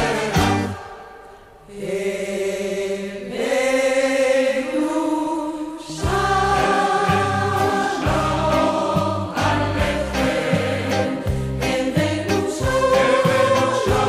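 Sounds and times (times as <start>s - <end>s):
steady drum beat: 0.0s - 0.8s, 6.0s - 14.0s
choir singing held notes: 0.0s - 14.0s.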